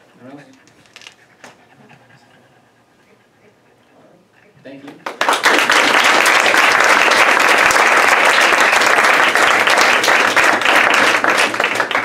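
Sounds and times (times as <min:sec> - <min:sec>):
people applauding: 0:05.0 - 0:12.0.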